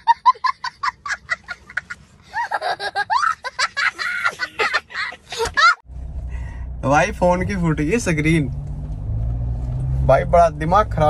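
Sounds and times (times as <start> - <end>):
boy laughing hysterically: 0.0 - 5.8.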